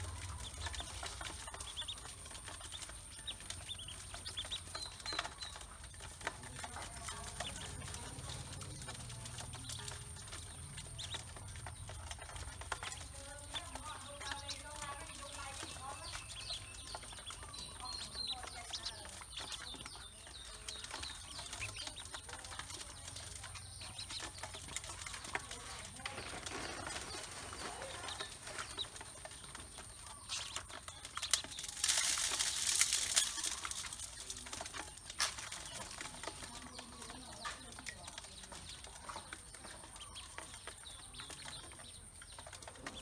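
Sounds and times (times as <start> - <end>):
harsh scuffling: 0.0 - 34.2
bills tapping on metal basin: 0.0 - 43.0
ducklings peeping: 0.0 - 43.0.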